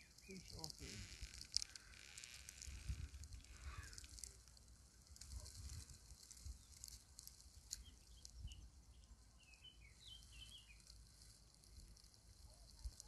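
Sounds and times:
low wind rumble on microphone: 2.0s - 4.3s, 5.0s - 9.0s
songbird twittering: 7.7s - 11.0s.

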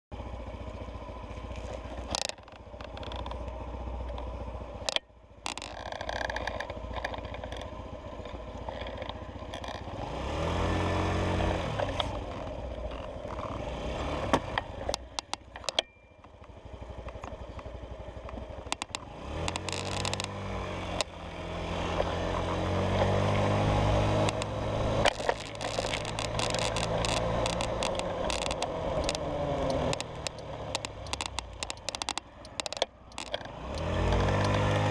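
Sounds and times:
wind and road noise: 0.1s - 34.9s
scooter engine accelerating: 0.2s - 34.9s
sharp knocks and rattles: 4.1s - 9.8s, 14.8s - 15.9s, 18.3s - 20.4s, 24.2s - 34.7s.

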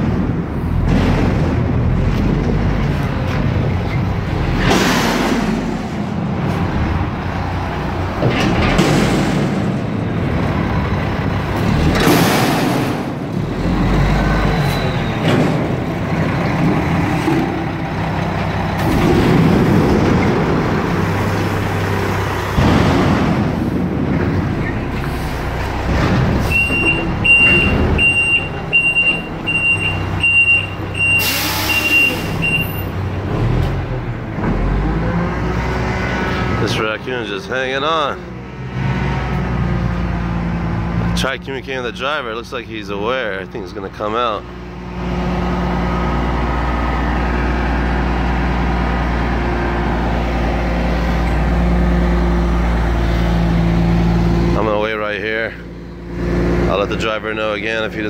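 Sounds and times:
diesel engine running: 0.0s - 58.0s
reversing alarm beeping: 14.2s - 15.2s, 26.5s - 32.9s
loud air hiss: 31.2s - 32.4s.

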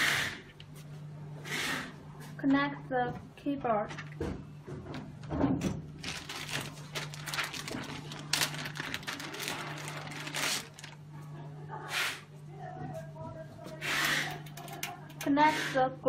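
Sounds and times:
low steady hum: 0.1s - 16.0s.

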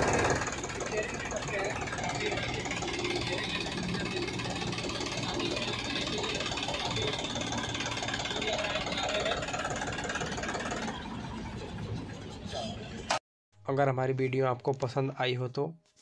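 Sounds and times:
tractor diesel engine idling: 0.0s - 12.4s.

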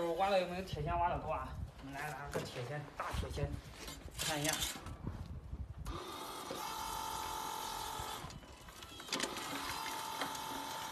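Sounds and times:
hydraulic pump whining: 5.8s - 10.9s.

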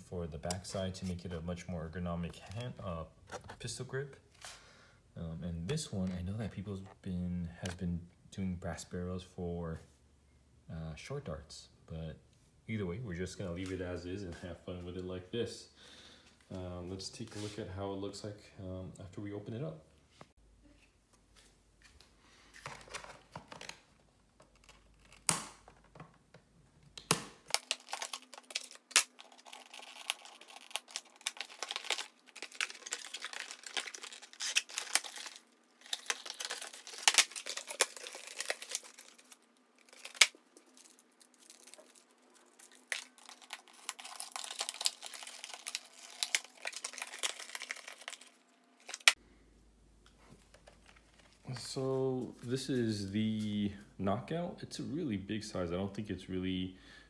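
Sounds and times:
packaging rustling: 27.4s - 49.2s, 50.3s - 51.7s.

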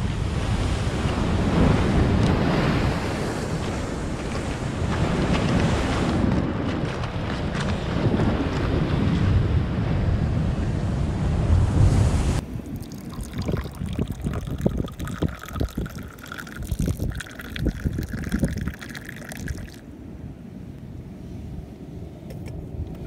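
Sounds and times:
wind buffeting microphone: 0.0s - 19.8s
surf breaking: 1.0s - 9.4s
tea pouring into glass: 12.6s - 19.8s.

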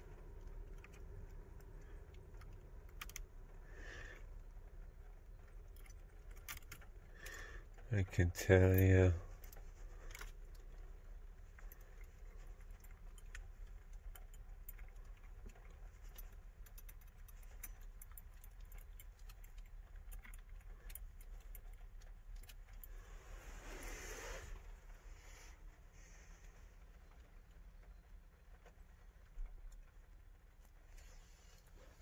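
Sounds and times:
keys jangling at ignition lock: 0.0s - 3.6s, 4.2s - 24.6s
brief rustle: 22.7s - 27.2s.

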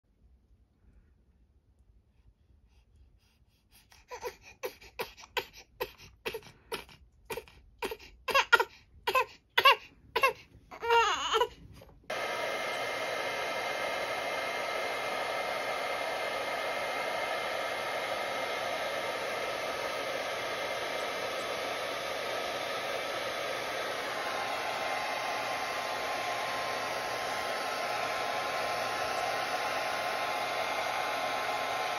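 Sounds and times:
baby crying: 4.0s - 11.6s
hair dryer running: 12.1s - 31.9s.

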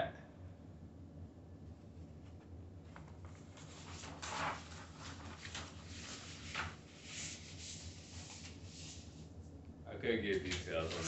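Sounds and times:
paper rustling and sliding: 2.4s - 9.3s, 10.3s - 11.0s.

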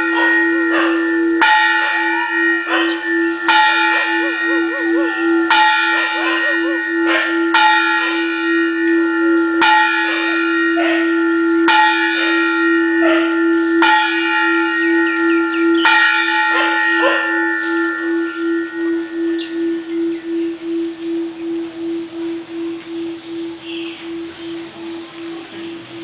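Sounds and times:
large temple bell ringing: 0.0s - 26.0s
dog howling: 0.1s - 1.1s, 1.8s - 3.1s, 3.9s - 8.3s, 16.5s - 17.4s.

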